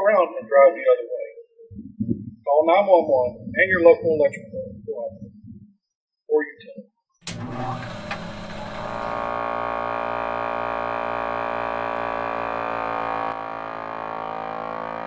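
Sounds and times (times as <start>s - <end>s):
sustained synthesizer chord: 8.1s - 15.0s.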